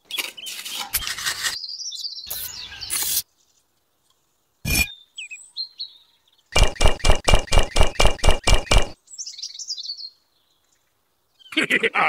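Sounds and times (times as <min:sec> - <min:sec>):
bird chirps: 0:01.6 - 0:03.6
sharp knock: 0:06.6 - 0:09.0.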